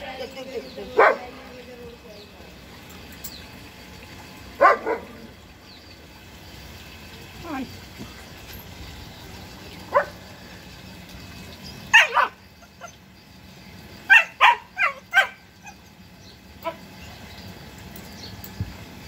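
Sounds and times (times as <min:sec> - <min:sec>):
puppies barking and yipping: 0:00.2 - 0:01.5, 0:04.4 - 0:05.6, 0:09.8 - 0:10.3, 0:11.6 - 0:13.1, 0:14.0 - 0:16.0, 0:16.6 - 0:17.3.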